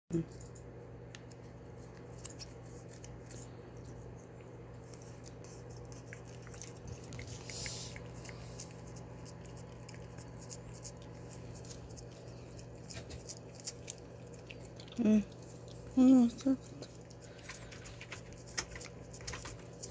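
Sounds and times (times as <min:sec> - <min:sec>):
cat licking wet clicks: 0:04.7 - 0:19.9.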